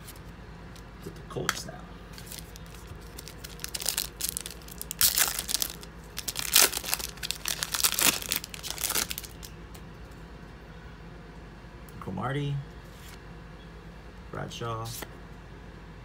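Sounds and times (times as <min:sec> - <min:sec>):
foil wrapper tearing and crinkling: 0:02.2 - 0:09.5.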